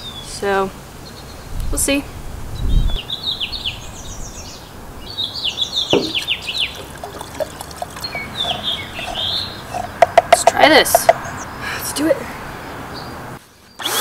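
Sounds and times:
songbird singing: 0.0 - 13.8
low thump: 5.9 - 6.2
liquid pouring into plastic container: 6.0 - 9.2.

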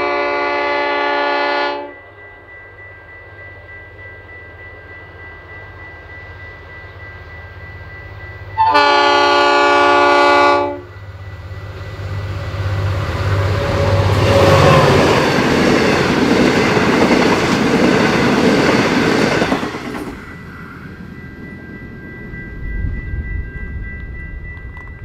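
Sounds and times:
locomotive horn: 0.0 - 1.9, 8.6 - 10.9, 13.3 - 15.2
train wheel clatter: 13.3 - 20.6.

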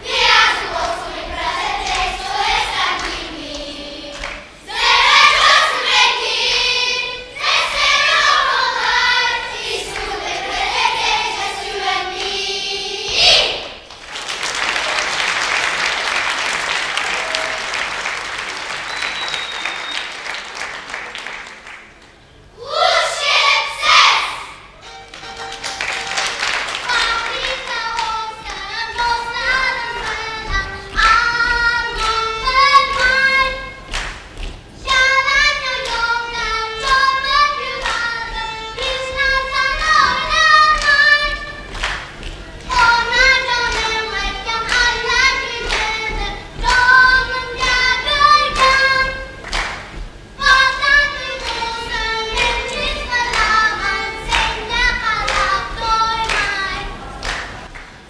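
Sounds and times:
child singing: 0.0 - 13.6, 26.8 - 33.8, 34.8 - 41.7, 42.7 - 49.4, 50.4 - 57.2
children singing along: 0.0 - 13.8, 22.5 - 34.1, 34.8 - 57.7
music with steady beat: 24.8 - 57.7.

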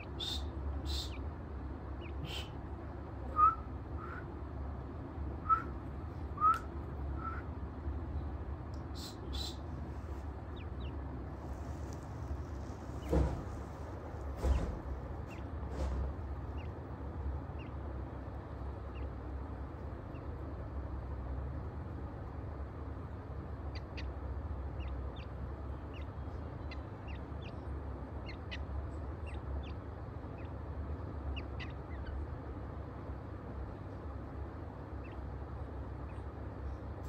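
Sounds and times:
chicks peeping: 0.0 - 2.7, 8.7 - 20.7, 23.5 - 32.6, 33.6 - 37.0
steady low hum: 0.0 - 37.0.

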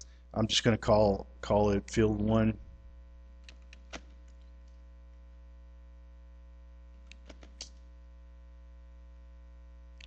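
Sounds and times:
low electrical hum: 0.0 - 10.0
computer keyboard keystrokes: 7.1 - 7.7.

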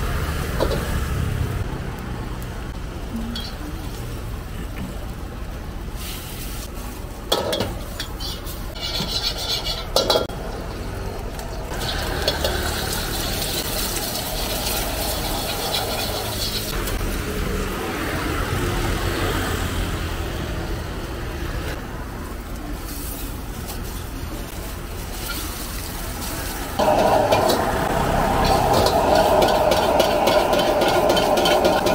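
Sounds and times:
gas burner roar: 0.0 - 3.1, 10.0 - 31.9
ladle clanking and scraping in wok: 0.2 - 1.3, 3.2 - 3.9, 6.0 - 10.8, 11.6 - 17.0, 22.8 - 31.9
oil and egg sizzling: 5.9 - 17.4, 22.3 - 31.9.

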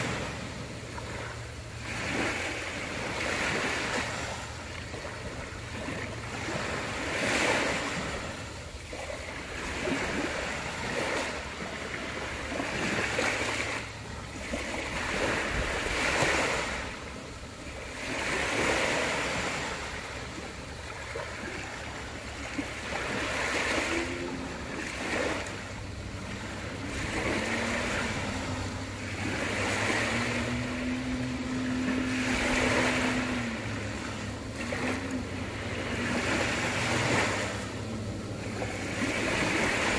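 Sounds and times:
small waves washing onto beach: 0.0 - 39.9
droning tone: 19.4 - 39.9.

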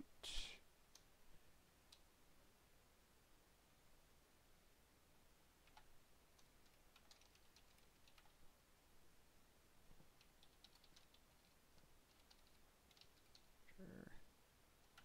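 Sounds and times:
faint computer keyboard typing: 5.6 - 8.4, 10.0 - 13.6, 14.8 - 15.0.

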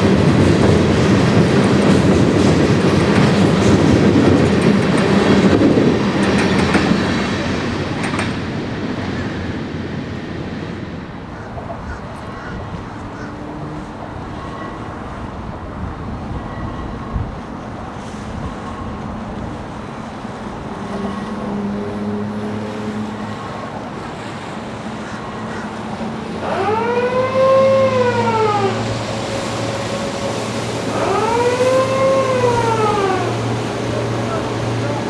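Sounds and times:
siren wailing: 26.4 - 29.0, 30.8 - 33.6.

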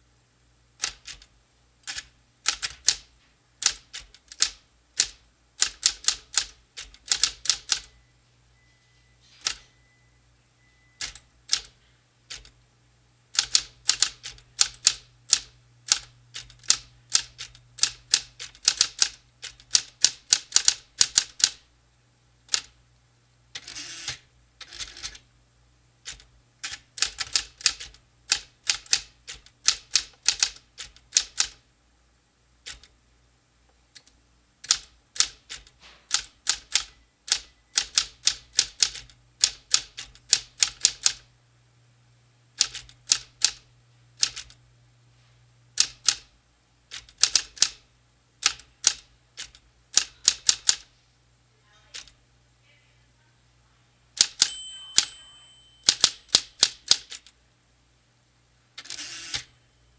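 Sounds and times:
typewriter carriage return whirring: 0.8 - 7.9, 9.2 - 9.7, 13.3 - 21.6, 23.5 - 25.2, 26.0 - 31.6, 34.6 - 41.2, 42.6 - 43.6, 44.2 - 44.6, 54.2 - 57.3, 58.8 - 59.6
typewriter keystrokes: 0.8 - 7.9, 9.4 - 9.6, 11.0 - 12.5, 13.3 - 21.6, 22.5 - 22.7, 26.0 - 31.6, 32.6 - 32.9, 33.9 - 41.2, 42.6 - 43.6, 44.2 - 44.6, 45.8 - 46.3, 46.9 - 47.8, 48.4 - 50.8, 54.2 - 55.2, 55.8 - 57.3
low steady hum: 7.8 - 19.7, 50.9 - 56.4, 59.4 - 59.9.

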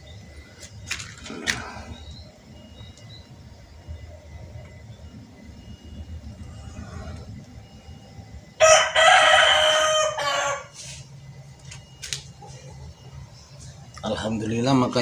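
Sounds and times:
rooster crowing: 8.4 - 11.0.

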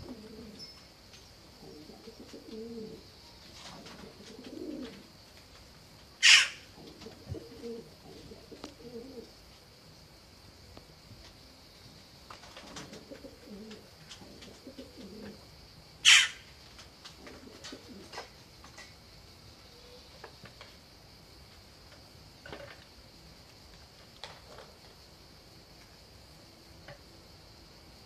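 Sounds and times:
doves cooing: 0.0 - 0.9, 1.5 - 5.2, 6.2 - 9.4, 12.3 - 16.4, 17.2 - 18.4.

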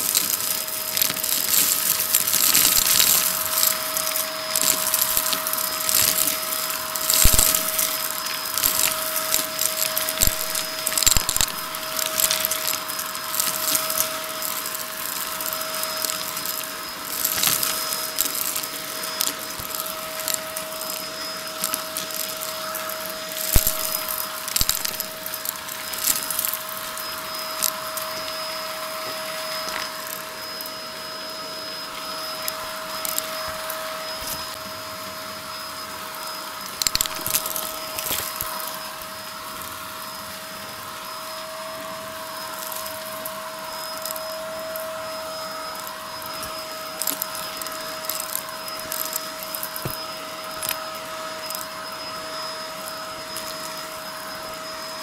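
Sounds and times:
debris rattling up vacuum hose: 0.0 - 30.2, 36.7 - 39.2, 45.6 - 51.8
vacuum cleaner whining: 0.0 - 55.0.

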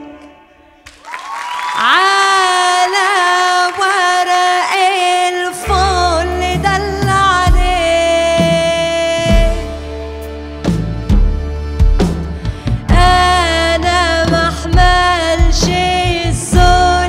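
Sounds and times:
woman singing with vibrato: 0.0 - 0.8, 1.5 - 9.9, 12.8 - 17.0
low steady accompaniment: 5.6 - 17.0.

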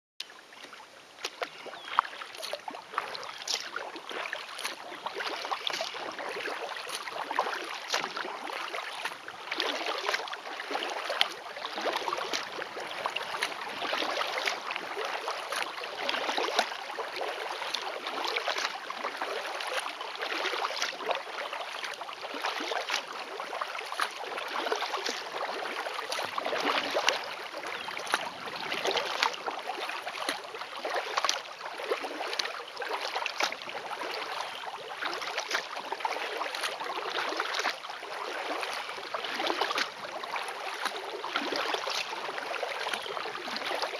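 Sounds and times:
kayak paddle splashing: 0.2 - 43.9.

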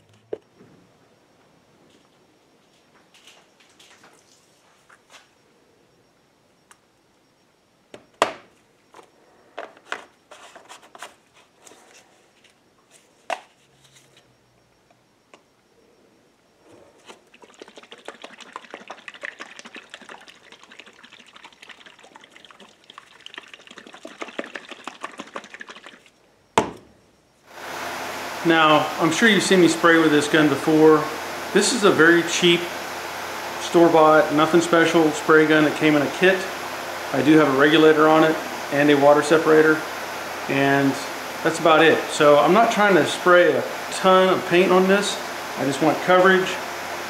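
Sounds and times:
cup rattling and sloshing: 16.9 - 26.2.

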